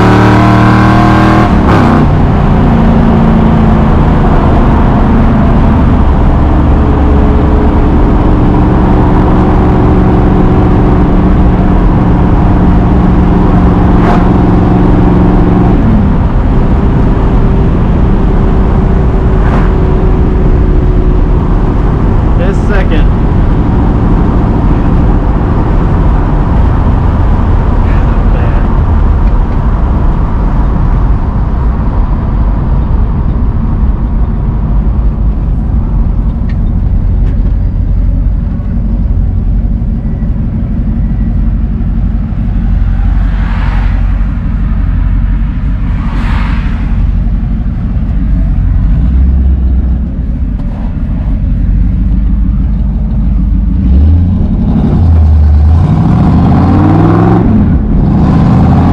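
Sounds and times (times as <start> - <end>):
car engine drone from inside: 0.0 - 58.9
brief whooshes: 45.6 - 47.5.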